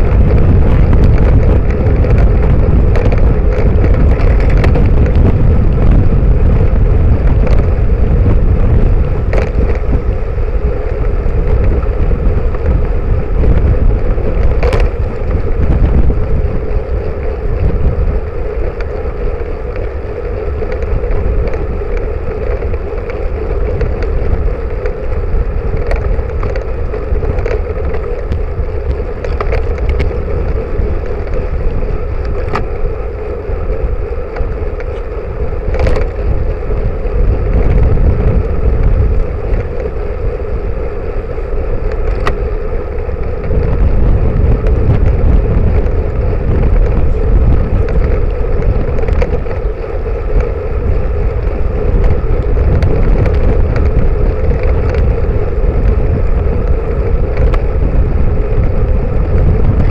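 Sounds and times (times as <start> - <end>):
road rumble: 0.0 - 59.9
wind buffeting microphone: 0.0 - 59.9
sharp clicks and knocks: 0.1 - 5.9, 9.2 - 10.0, 14.0 - 16.1, 20.6 - 32.9, 35.7 - 36.8, 41.8 - 42.5.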